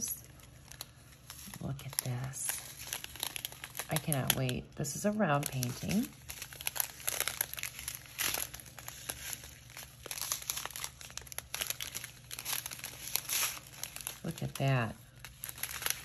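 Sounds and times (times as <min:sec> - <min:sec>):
plastic packets crinkling: 0:00.0 - 0:16.0.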